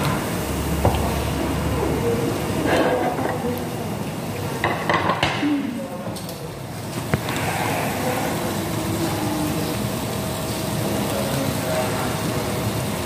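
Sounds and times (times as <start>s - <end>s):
meat sizzling on grill pan: 0.0s - 5.2s, 6.7s - 13.0s
voices murmuring: 5.3s - 12.8s.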